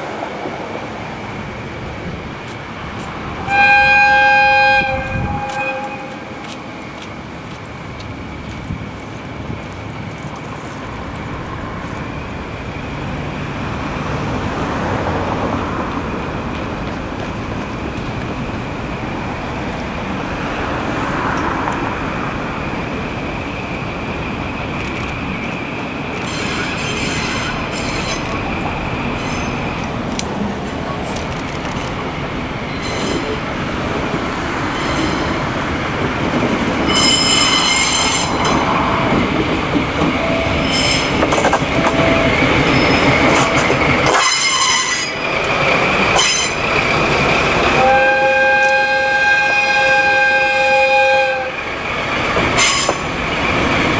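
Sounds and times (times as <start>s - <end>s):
diesel locomotive engines rumbling: 0.0s - 53.9s
wheels squealing on track: 36.8s - 38.6s, 40.5s - 41.4s, 42.0s - 46.7s.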